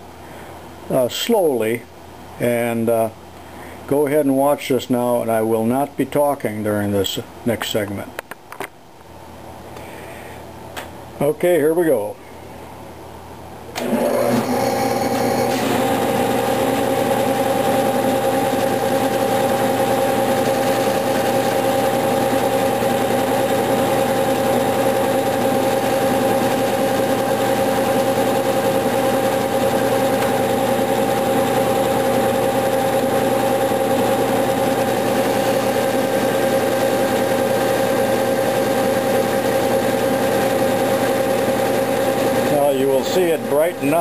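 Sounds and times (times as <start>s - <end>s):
metal lathe running: 13.8s - 44.0s.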